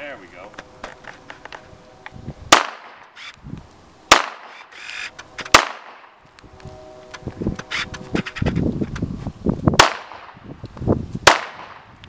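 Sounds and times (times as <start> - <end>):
pistol shots: 2.5 - 3.0, 4.1 - 6.1, 9.8 - 10.4, 11.2 - 11.8.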